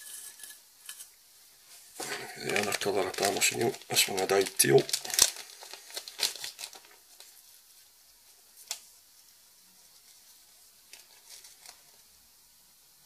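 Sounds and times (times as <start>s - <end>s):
soft ticks and rustles: 2.5s - 12.1s.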